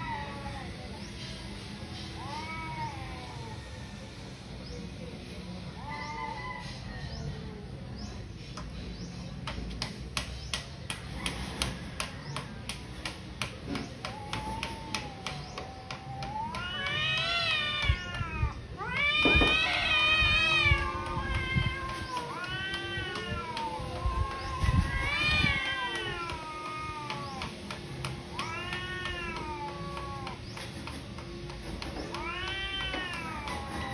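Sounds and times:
cat yowling: 14.1s - 27.6s, 28.3s - 30.4s.

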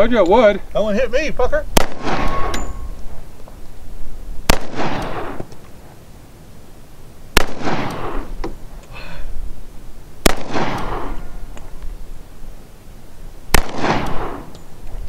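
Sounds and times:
pistol shots with echo: 1.8s - 2.9s, 4.5s - 5.5s, 7.4s - 8.4s, 10.2s - 11.4s, 13.5s - 14.5s.

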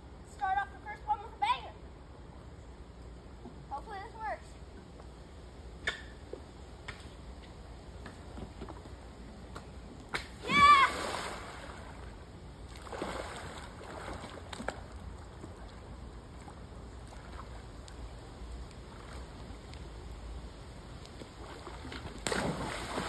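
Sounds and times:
pool water sloshing: 8.2s - 23.0s
child splashing into pool: 10.4s - 11.9s, 21.9s - 23.0s.

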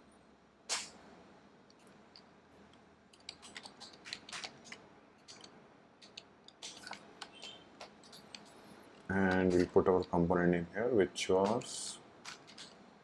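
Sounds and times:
keyboard key clicks: 3.1s - 8.5s.

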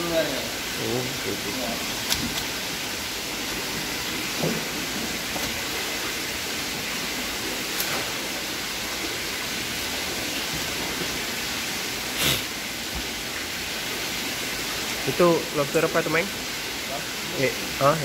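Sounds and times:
steady rushing hiss: 5.8s - 18.0s.

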